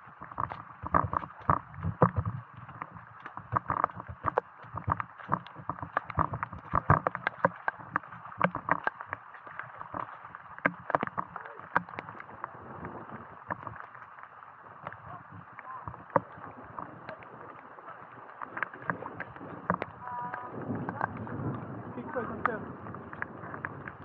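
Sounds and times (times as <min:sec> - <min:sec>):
knocks and taps: 0:00.3 - 0:12.1, 0:19.6 - 0:21.2.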